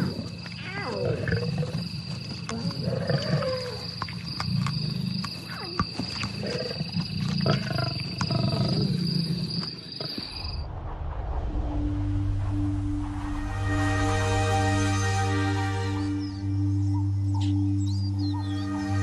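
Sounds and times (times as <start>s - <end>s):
lions growling and snarling: 0.0s - 10.4s.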